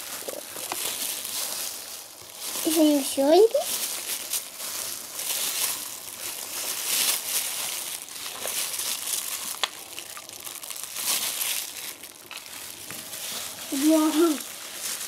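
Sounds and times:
plastic crinkling: 0.0 - 15.0.

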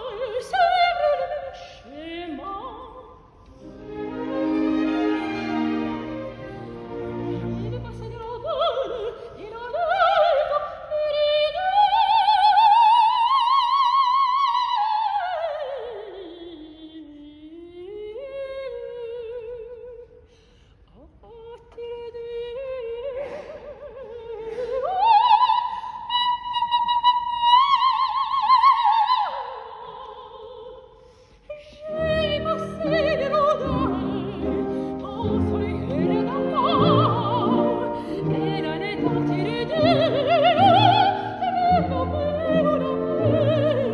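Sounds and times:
operatic soprano singing: 0.0 - 20.2, 21.0 - 43.9
orchestra playing: 3.5 - 8.5, 32.0 - 43.9.

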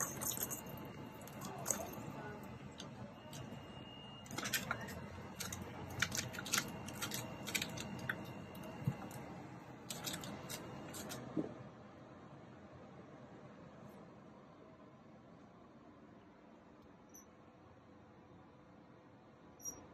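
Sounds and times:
kitten claws scratching post: 4.3 - 8.3.

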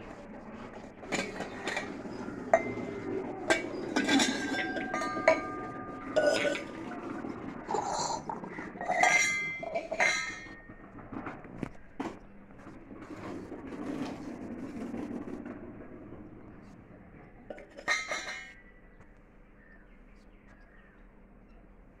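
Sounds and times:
metal clinking on metal: 1.1 - 8.2, 8.8 - 10.7, 17.5 - 18.6
cups knocking: 1.1 - 10.7, 17.5 - 18.6.

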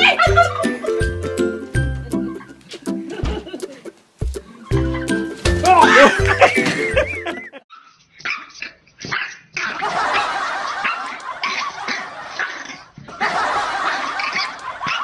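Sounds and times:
puppy yapping and barking: 7.7 - 9.9, 14.2 - 15.0.

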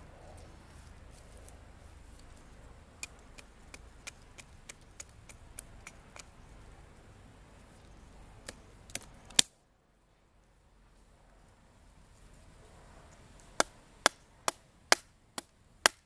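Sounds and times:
axe chopping stick of wood: 13.6 - 16.0.

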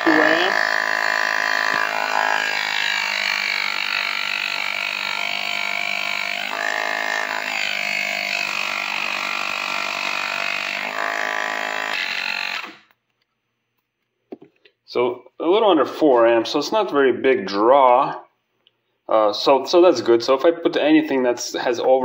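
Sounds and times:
portable air compressor humming: 0.0 - 7.8.

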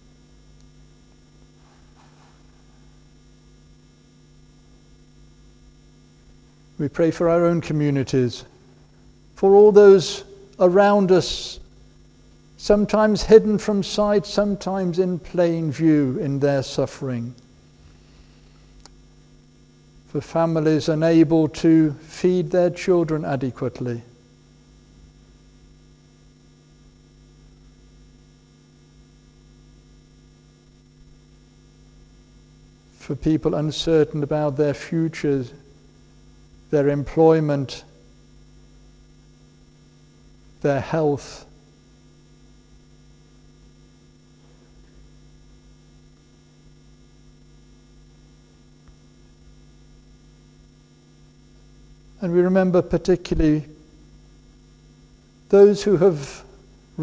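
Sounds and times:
electrical mains hum: 0.0 - 57.0
faint click: 18.8 - 19.0.

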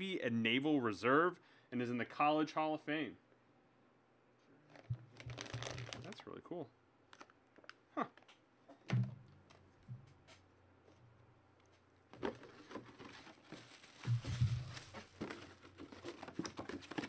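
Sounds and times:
cardboard rustling: 4.7 - 6.2, 12.1 - 17.0
plastic crinkling: 4.7 - 6.4, 7.1 - 7.8, 12.1 - 17.0.

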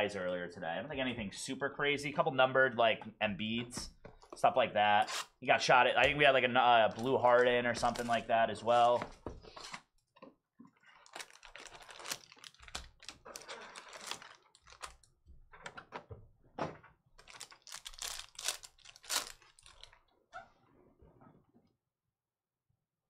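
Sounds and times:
foil card packs crinkling: 6.9 - 9.8, 10.9 - 15.1, 17.2 - 20.0.

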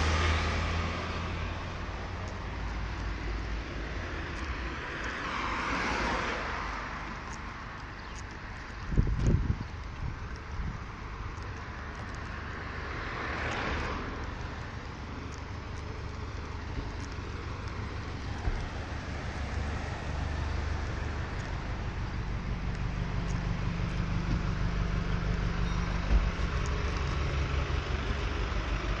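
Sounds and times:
vehicle passing: 0.0 - 7.8, 11.8 - 29.0
street traffic: 0.0 - 29.0
minibus engine idling: 14.4 - 29.0.

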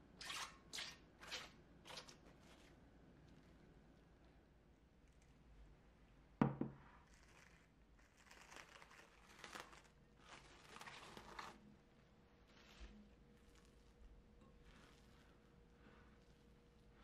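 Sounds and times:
glass bowl knocking on counter: 6.4 - 6.8
cling film crinkling: 7.0 - 11.7.

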